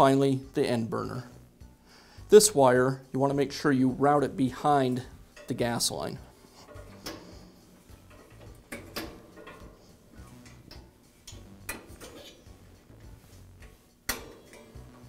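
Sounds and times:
wires clicking into clips: 8.1s - 15.0s.

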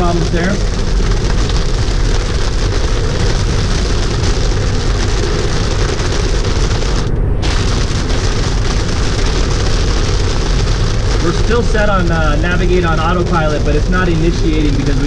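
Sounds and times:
heavy rain on car windshield: 0.0s - 15.0s
tyre and road rumble: 0.0s - 15.0s.

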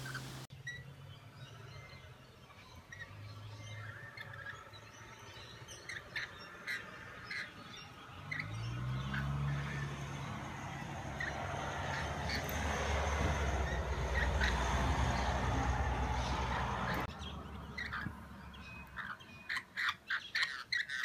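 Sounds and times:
parrots shrill chirps: 17.7s - 21.0s.

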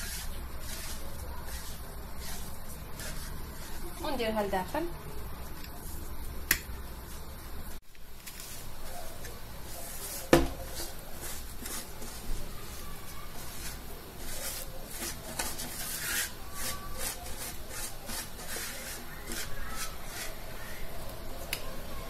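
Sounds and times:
dough scraping in wooden bowl: 0.0s - 4.5s, 8.2s - 20.8s.

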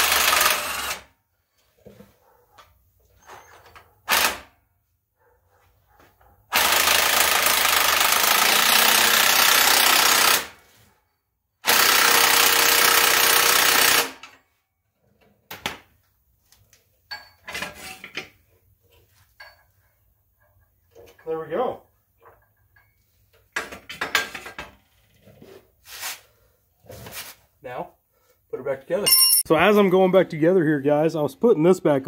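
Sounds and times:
metal tool clanks: 17.1s - 18.3s, 19.4s - 21.3s, 29.1s - 29.5s.

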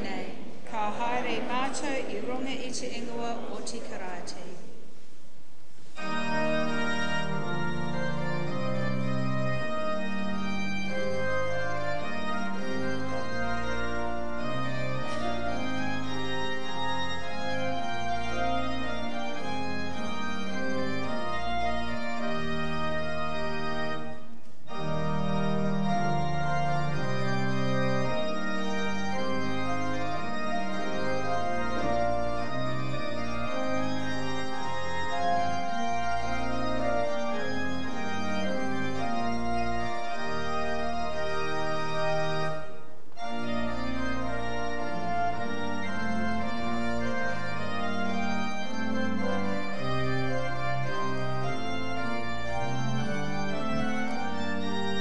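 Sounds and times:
church organ playing chords: 6.0s - 55.0s.

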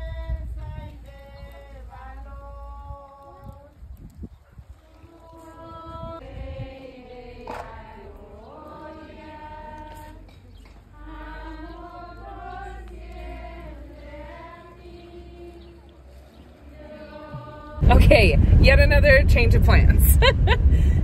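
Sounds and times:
crowd singing a hymn: 0.0s - 3.6s, 4.9s - 18.6s
low rumble: 17.3s - 21.0s.

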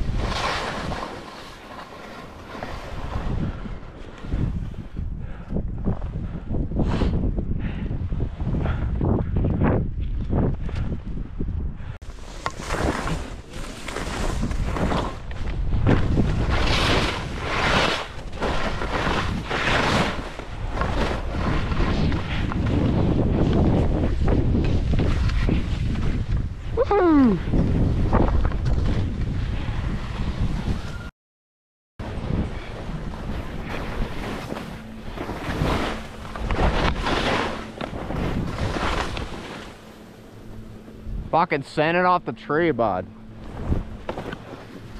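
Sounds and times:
wind buffeting microphone: 0.0s - 1.2s, 2.6s - 31.1s, 32.0s - 41.4s
skis carving on snow: 0.0s - 4.7s, 12.1s - 31.0s, 32.3s - 40.0s
skis hissing across snow: 16.2s - 22.1s, 33.6s - 39.9s.

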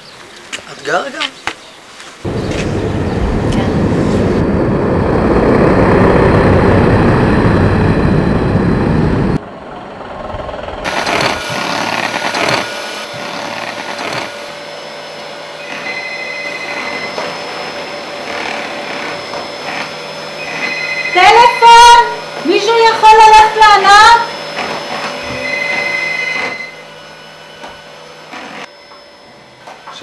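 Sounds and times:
loud rushing outdoor noise: 2.2s - 14.3s
hand mixer motor whine: 10.8s - 29.4s
telephone ringing: 15.6s - 19.8s, 20.4s - 22.1s, 24.9s - 26.9s.

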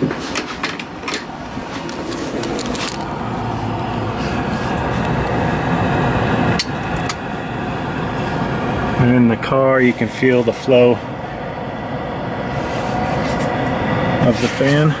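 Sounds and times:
blower motor whirring: 0.0s - 15.0s.

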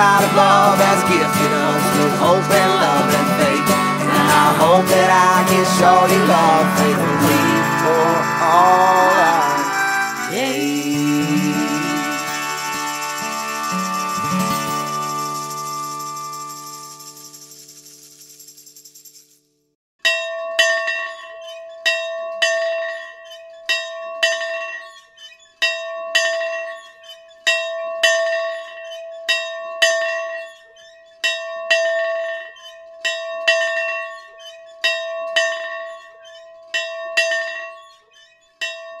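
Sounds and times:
bell ringing: 0.0s - 18.6s.

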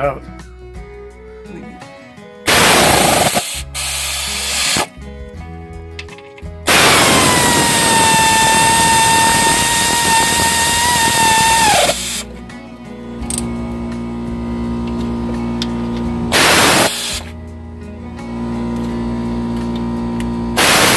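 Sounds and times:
air ratchet hissing whine: 2.5s - 4.9s, 6.7s - 12.3s, 16.3s - 17.3s, 20.6s - 20.9s.

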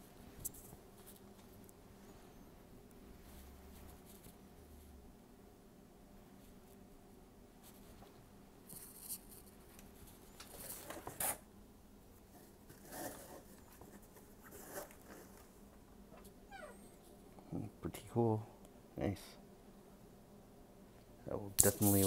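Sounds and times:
paper and fabric rustling: 7.6s - 11.4s.

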